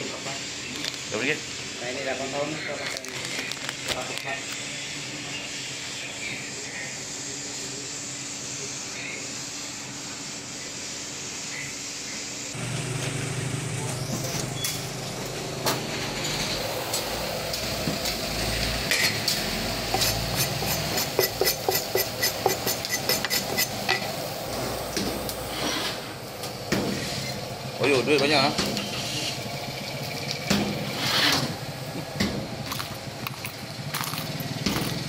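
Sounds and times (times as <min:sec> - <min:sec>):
sizzling in a wok: 0:16.7 - 0:27.6.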